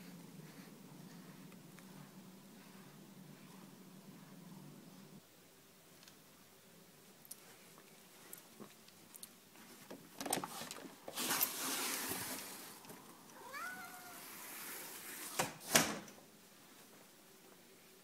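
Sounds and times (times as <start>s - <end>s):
sliding door opening: 10.2s - 12.8s, 14.1s - 16.2s
cat meowing: 13.4s - 14.3s.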